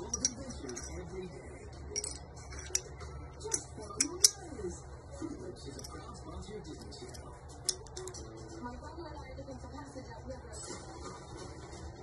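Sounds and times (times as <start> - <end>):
metal pistol parts clicking: 0.0 - 1.0, 1.9 - 4.4, 6.8 - 8.2.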